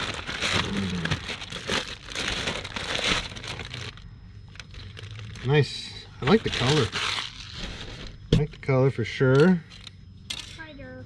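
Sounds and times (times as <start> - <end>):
plastic bag crinkling: 0.0 - 5.6, 6.2 - 8.1.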